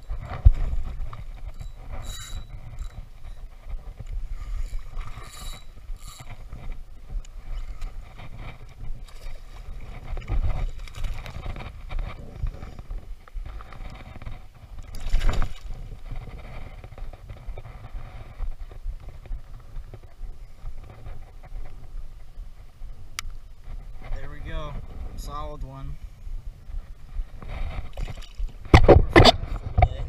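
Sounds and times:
fish splashing in shallow water: 4.3 - 12.1, 12.8 - 17.2, 27.7 - 29.4.

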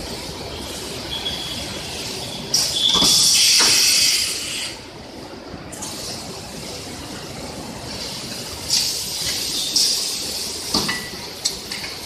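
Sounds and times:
factory machinery noise: 0.0 - 12.0
heat-sealing press hissing: 1.9 - 4.8.

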